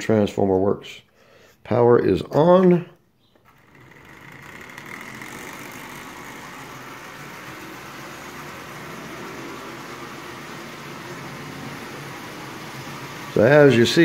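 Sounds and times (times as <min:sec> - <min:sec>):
toy train motor whining: 0:03.4 - 0:14.0
toy train rolling on metal track: 0:03.5 - 0:14.0.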